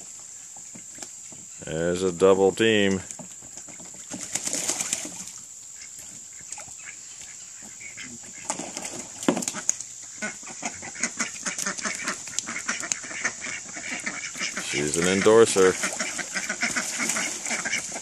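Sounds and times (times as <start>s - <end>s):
ducks splashing in water: 2.9s - 18.0s
ducks quacking softly: 5.7s - 8.7s, 9.4s - 18.0s.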